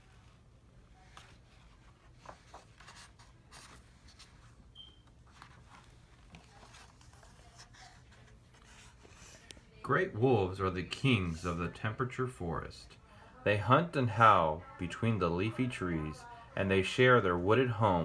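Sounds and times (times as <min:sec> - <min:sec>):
book pages turning: 0:00.1 - 0:09.6.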